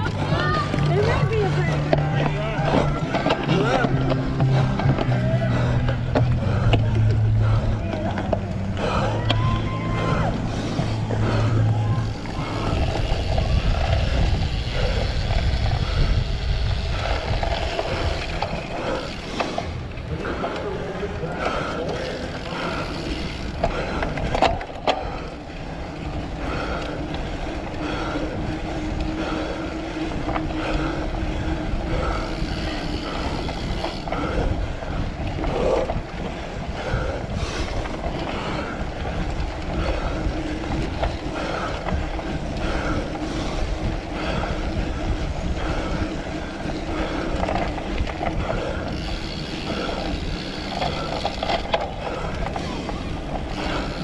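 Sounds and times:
bike tyres rolling and rattling: 0.0s - 54.0s
wind on microphone: 8.8s - 19.0s, 26.0s - 54.0s.

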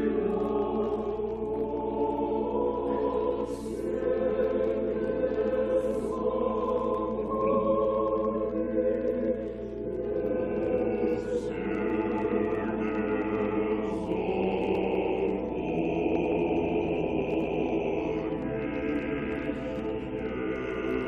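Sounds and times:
choir singing unaccompanied: 0.0s - 21.0s.

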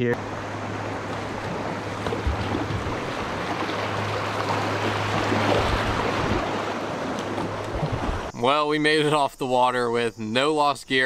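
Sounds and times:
rushing river water: 0.2s - 8.4s
water splashing along kayak hull: 0.2s - 8.4s.

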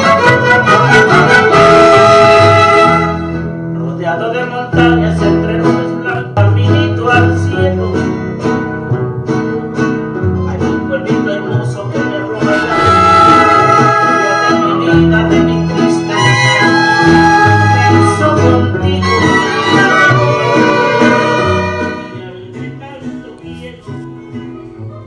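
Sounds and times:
string band with guitars and violin: 0.0s - 25.0s.

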